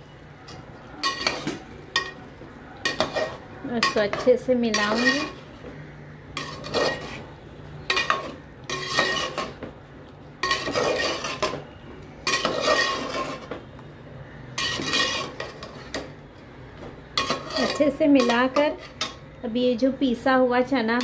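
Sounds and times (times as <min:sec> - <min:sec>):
metal ladle scraping pot: 0:00.5 - 0:05.6, 0:06.3 - 0:09.6, 0:10.4 - 0:13.6, 0:14.6 - 0:16.1, 0:17.1 - 0:19.2.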